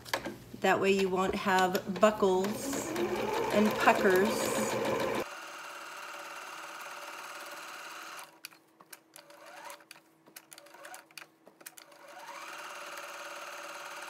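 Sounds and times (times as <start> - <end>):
sewing machine stitching: 2.3 - 5.4, 9.2 - 9.9, 10.5 - 14.0.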